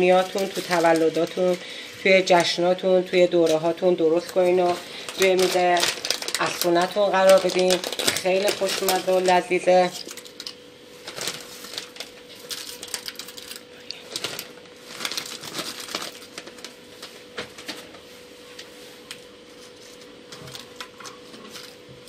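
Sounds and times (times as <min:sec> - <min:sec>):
potato chips crinkling: 0:00.0 - 0:17.0
faint steady hum: 0:00.0 - 0:22.0.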